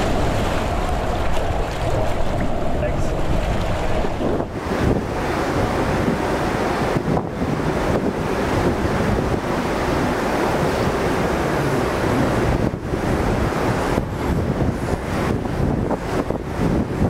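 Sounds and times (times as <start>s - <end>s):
rider splashing into water: 0.0s - 6.3s
water rushing out of tube: 0.0s - 7.5s.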